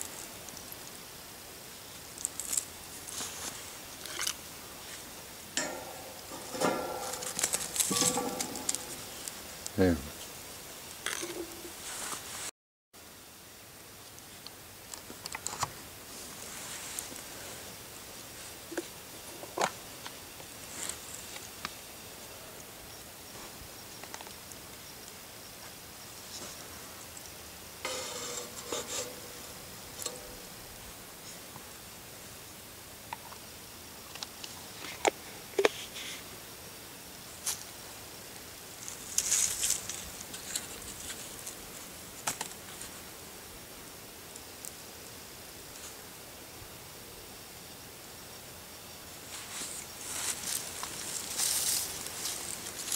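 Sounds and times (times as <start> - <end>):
campfire embers crackling and popping: 0.0 - 11.6
coals crackling and popping: 0.0 - 12.3, 13.8 - 21.8, 22.6 - 32.3, 37.4 - 43.1, 50.0 - 52.9
faint hiss: 0.0 - 52.9
faint steady background noise: 0.0 - 52.9.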